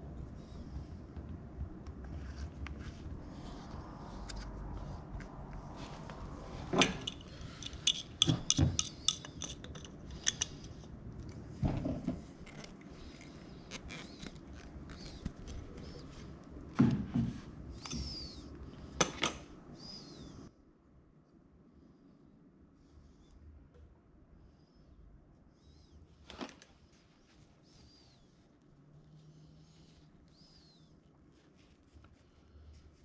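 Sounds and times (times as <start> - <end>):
clicks and clinks of fittings: 6.8 - 10.9.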